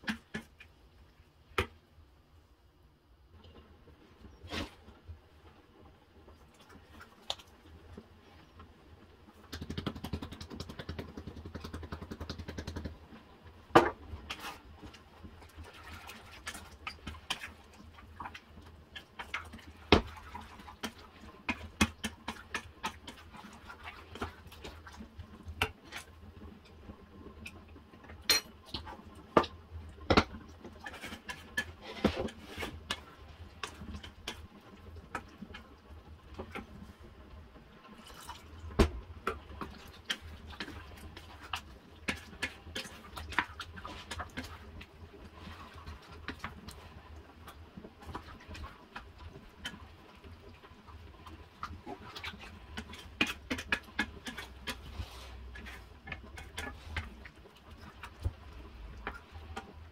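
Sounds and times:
spoon stirring thick sauce: 14.2s - 26.1s, 30.2s - 35.6s, 39.2s - 59.8s
spoon knocking and scraping pan: 30.1s - 33.1s.

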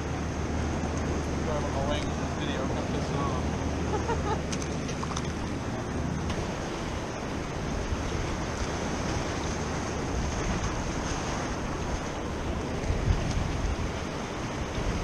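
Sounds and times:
choppy water rushing: 0.0s - 15.0s
wind buffeting microphone: 0.7s - 15.0s.

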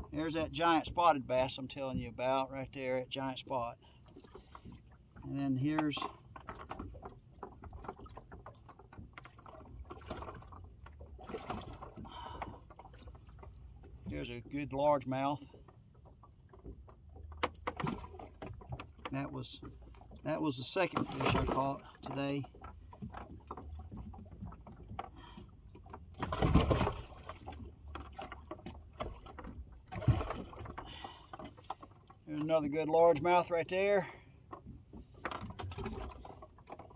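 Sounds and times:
hands sloshing water: 5.8s - 14.3s, 19.8s - 32.8s
knocks and clicks against tank: 16.6s - 20.0s.

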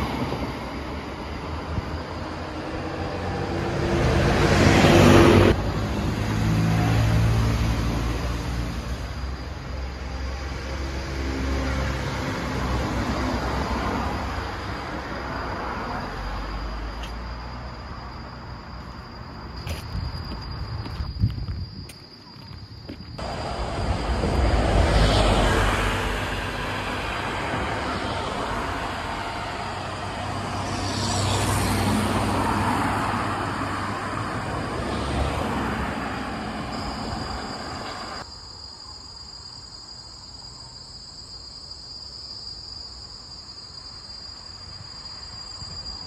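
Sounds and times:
cars passing on road: 0.0s - 46.0s
faint steady high tone: 33.3s - 38.3s.

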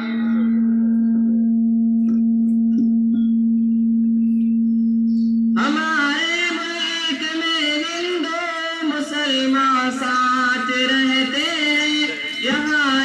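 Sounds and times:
person singing: 0.0s - 1.1s, 5.6s - 13.0s
steady held tone: 0.0s - 13.0s.

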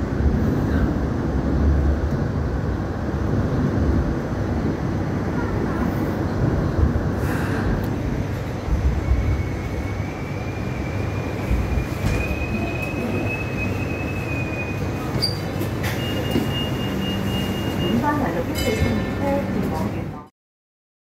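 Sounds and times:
light rail car rumble: 0.0s - 20.3s
high wheel squeal: 9.0s - 18.9s.

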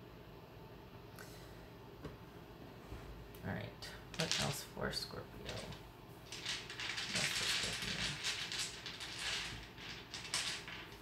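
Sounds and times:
cards being shuffled: 5.5s - 11.0s.

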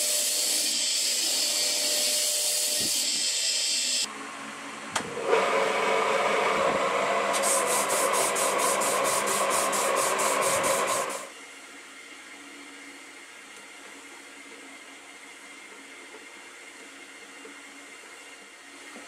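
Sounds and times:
knife blade being sanded: 0.0s - 3.9s, 7.4s - 11.3s.

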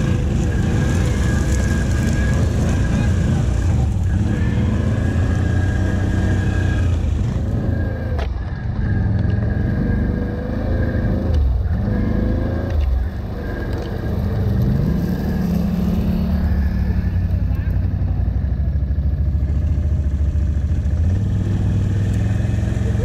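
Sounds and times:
engine revving up: 0.0s - 17.4s
atv engine running: 0.0s - 23.0s.

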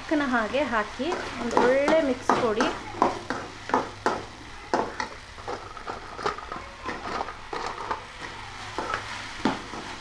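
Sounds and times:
faint sizzle: 0.0s - 10.0s
metal spoon scraping a pan: 4.8s - 10.0s.

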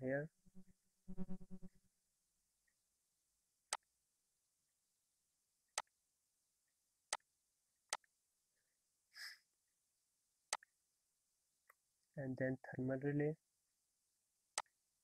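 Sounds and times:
computer mouse clicking: 10.5s - 10.7s.

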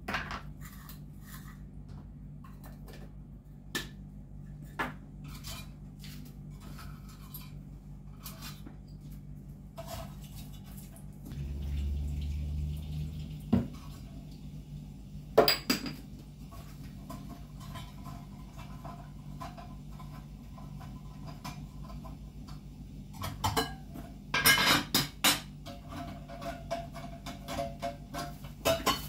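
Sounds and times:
steady low hum: 11.1s - 29.0s
dishes knocking: 15.4s - 16.1s
dishes clattering: 15.4s - 22.2s, 23.1s - 29.0s.

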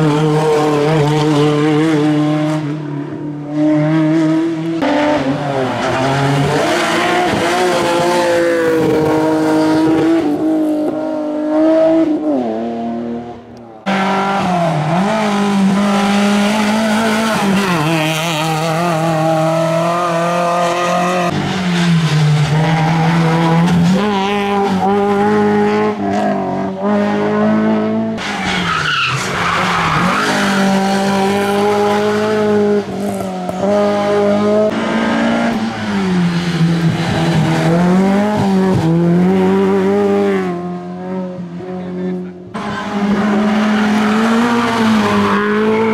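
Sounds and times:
race car engine at high revs: 0.0s - 45.9s
tyre squeal: 28.2s - 30.6s.

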